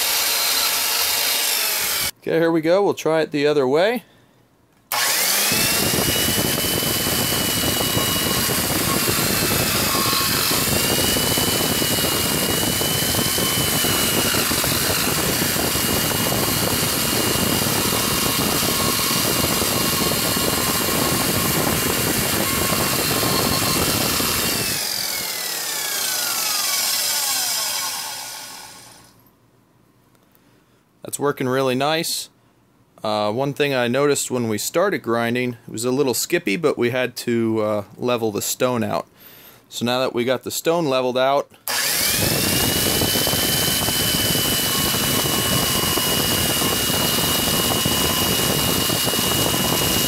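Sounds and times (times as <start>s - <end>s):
grinder motor whine: 0.0s - 2.1s, 4.9s - 29.2s, 41.7s - 50.0s.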